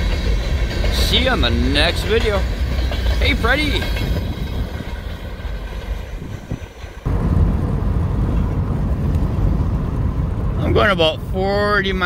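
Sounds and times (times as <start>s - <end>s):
freight cars rolling on rails: 0.0s - 12.0s
car road rumble from inside: 7.0s - 12.0s.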